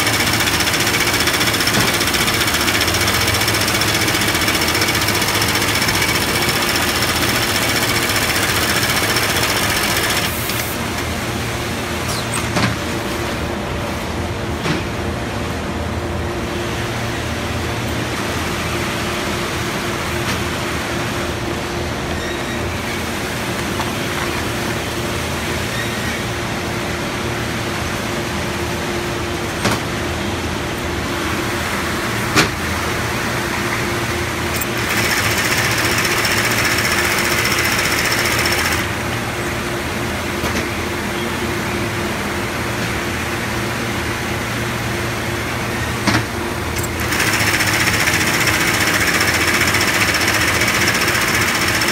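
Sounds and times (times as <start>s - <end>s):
sewing machine running: 0.0s - 10.8s, 34.5s - 39.0s, 46.8s - 51.9s
factory machinery hum: 0.0s - 51.9s.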